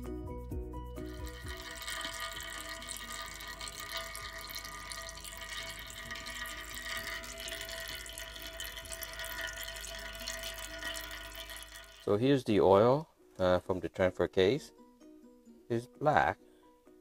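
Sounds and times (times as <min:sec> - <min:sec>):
oil trickling from drain: 0:01.1 - 0:12.2.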